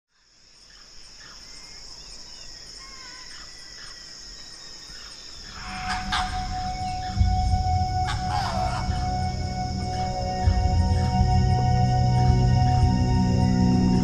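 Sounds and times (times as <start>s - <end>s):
high-pitched insect drone: 5.4s - 14.0s
music with low bass: 5.8s - 14.0s.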